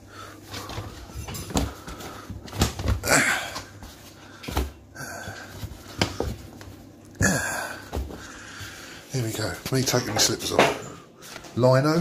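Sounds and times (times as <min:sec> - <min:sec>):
heavy breathing: 0:00.0 - 0:09.2
shoes thumping on floor: 0:00.6 - 0:04.8, 0:05.5 - 0:06.7.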